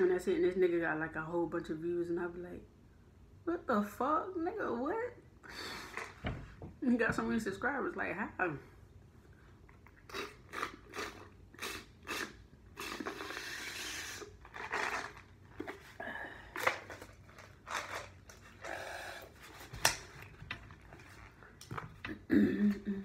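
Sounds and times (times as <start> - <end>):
person drinking through a straw: 9.8 - 16.0, 18.4 - 19.4.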